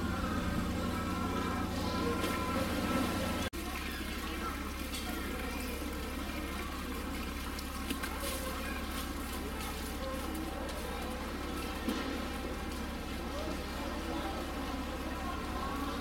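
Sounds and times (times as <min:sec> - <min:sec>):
steady low hum: 0:00.0 - 0:03.5
water trickling: 0:00.0 - 0:16.0.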